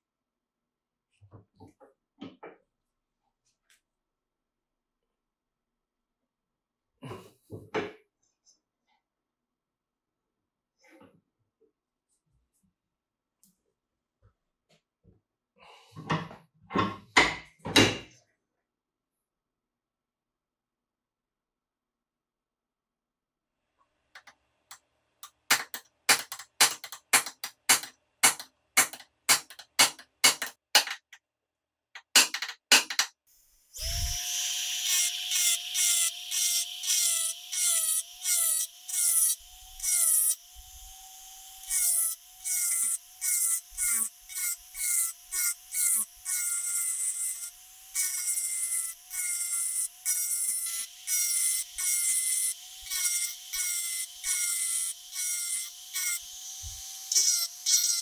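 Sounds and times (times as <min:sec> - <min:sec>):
rotary tool grinding steel: 0:33.6 - 0:58.0.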